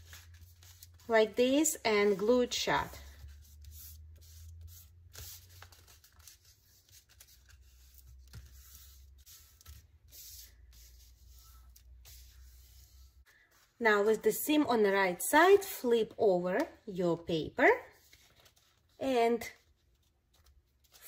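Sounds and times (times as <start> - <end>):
hands rubbing paper: 0.0 - 13.8.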